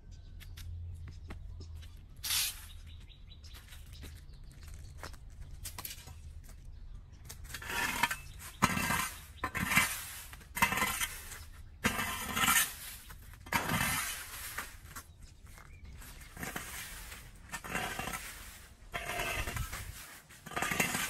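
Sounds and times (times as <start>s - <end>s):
rake scraping leaves on concrete: 2.2s - 2.9s, 7.3s - 21.0s.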